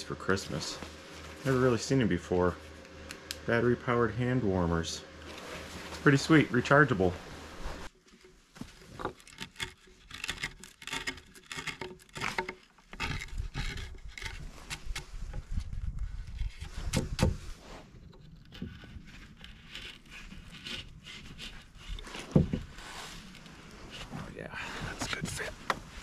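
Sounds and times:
chisel scraping wood: 8.1s - 24.2s.

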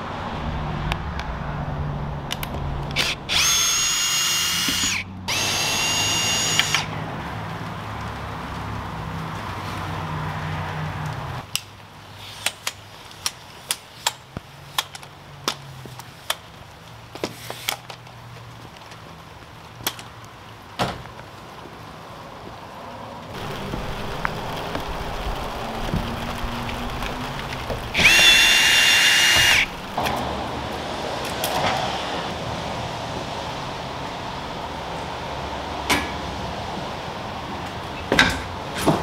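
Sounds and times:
small motor whining: 3.0s - 6.9s, 27.8s - 30.0s.

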